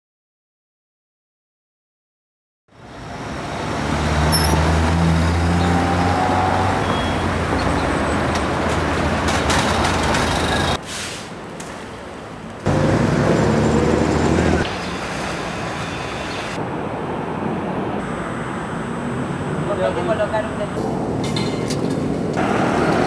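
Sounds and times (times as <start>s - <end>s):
traffic noise: 2.7s - 23.0s
heavy vehicle engine running: 12.7s - 16.6s.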